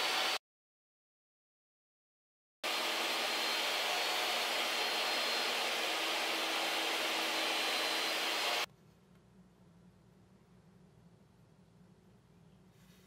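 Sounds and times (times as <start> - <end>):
table saw cutting wood: 0.0 - 0.4, 2.6 - 8.7
faint low hum: 8.7 - 13.0.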